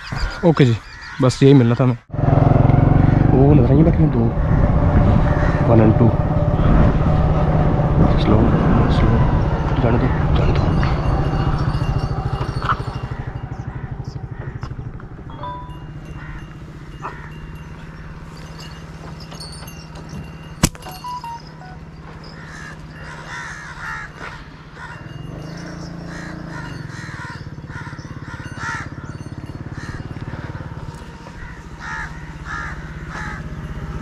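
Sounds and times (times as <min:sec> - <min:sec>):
crows cawing: 0:00.0 - 0:01.8, 0:04.1 - 0:06.6, 0:09.2 - 0:19.3, 0:22.1 - 0:34.0
low engine hum: 0:02.1 - 0:34.0.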